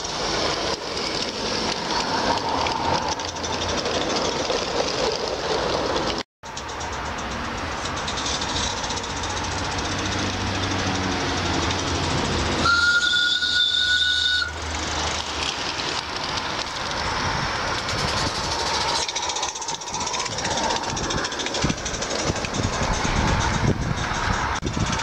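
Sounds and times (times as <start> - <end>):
steam locomotive hissing: 0.0 - 25.0
two-note steam whistle: 12.6 - 14.6.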